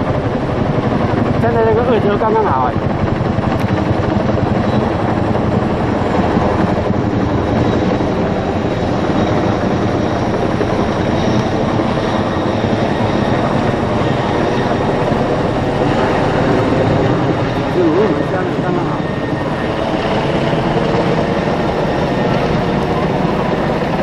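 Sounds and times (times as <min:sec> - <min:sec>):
helicopter rotor and engine noise: 0:00.0 - 0:24.0.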